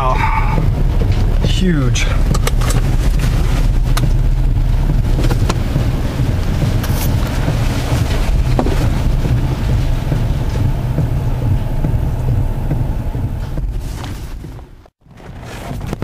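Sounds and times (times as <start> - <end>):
storm wind rumbling on microphone: 0.0 - 16.0
knocks against car: 4.9 - 12.0.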